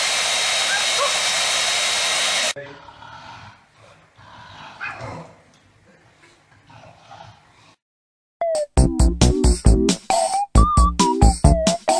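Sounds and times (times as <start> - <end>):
hair dryer blowing: 0.0 - 2.6.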